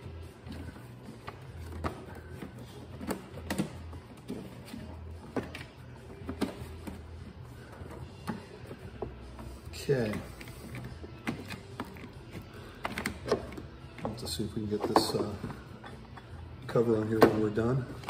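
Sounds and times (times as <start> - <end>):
plastic parts clicking and knocking: 7.8 - 18.0.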